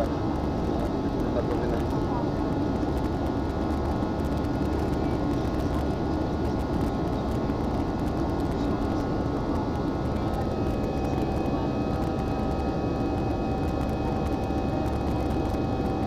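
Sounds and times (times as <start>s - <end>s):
airliner cabin roar: 0.0s - 16.0s
faint jet engine whine: 0.0s - 16.0s.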